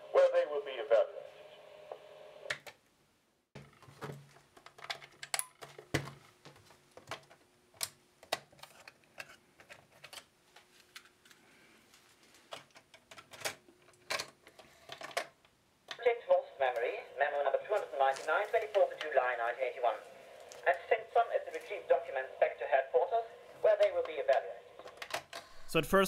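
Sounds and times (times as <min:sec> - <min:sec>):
faint steady hum: 0:00.0 - 0:26.0
plastic clicks and clacks: 0:03.6 - 0:10.3, 0:12.5 - 0:16.0, 0:23.8 - 0:25.5.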